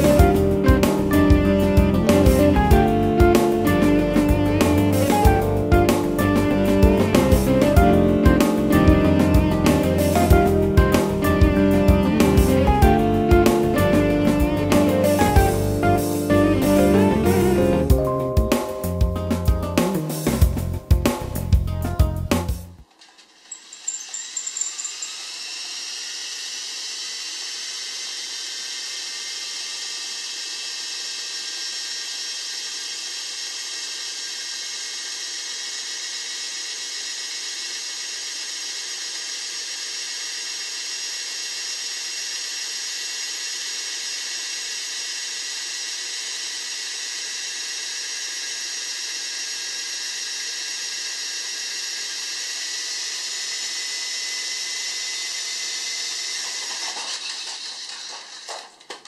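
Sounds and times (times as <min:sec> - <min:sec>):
high-pitched motor and gear whine: 0:00.0 - 0:18.9, 0:22.7 - 0:58.8.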